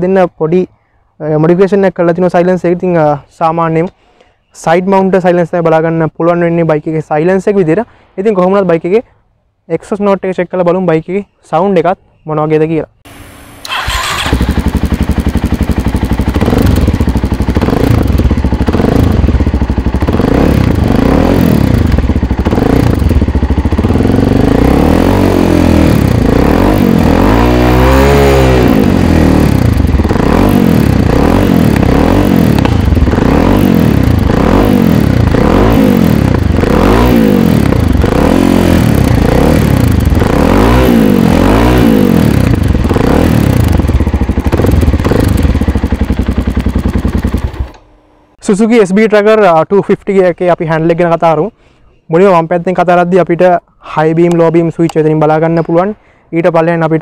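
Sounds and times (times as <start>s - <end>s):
motorcycle engine idling and revving: 13.1s - 48.4s.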